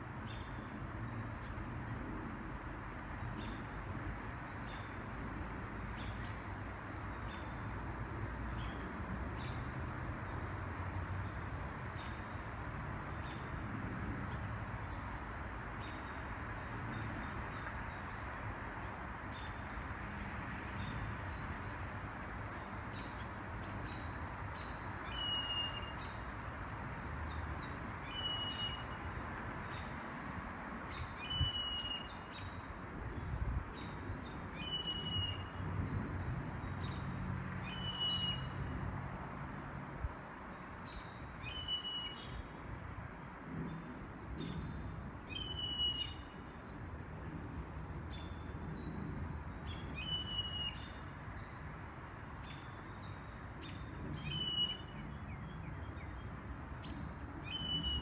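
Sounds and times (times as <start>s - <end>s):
blue jay calling: 25.0s - 26.1s, 27.6s - 29.0s, 31.0s - 32.5s, 34.5s - 35.5s, 37.6s - 38.6s, 41.4s - 42.3s, 45.3s - 46.3s, 49.7s - 51.0s, 54.2s - 55.1s, 57.4s - 58.0s.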